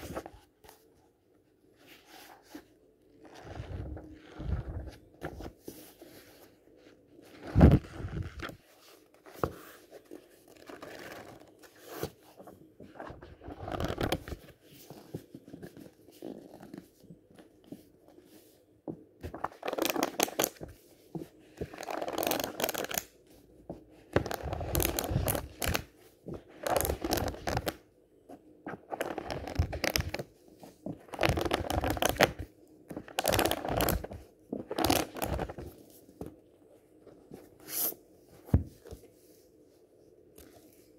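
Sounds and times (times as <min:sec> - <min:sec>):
book pages riffling: 0:03.2 - 0:06.5, 0:19.2 - 0:20.8, 0:21.6 - 0:23.1, 0:24.1 - 0:27.8, 0:28.7 - 0:36.3.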